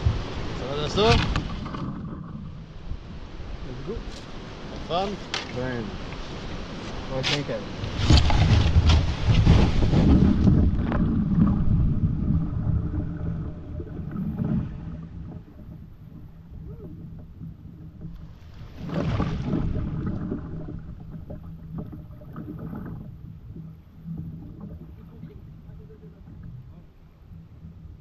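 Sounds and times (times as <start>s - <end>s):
rushing water: 0.0s - 28.0s
water swirling around hull: 0.0s - 28.0s
paddle strokes: 3.8s - 28.0s
kayak splashing into water: 7.9s - 23.1s.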